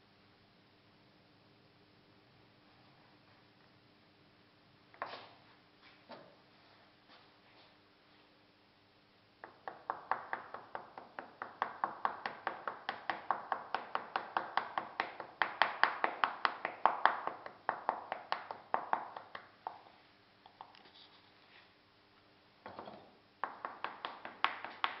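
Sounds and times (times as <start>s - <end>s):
hand tool tapping on wood: 9.4s - 19.9s, 22.8s - 25.0s.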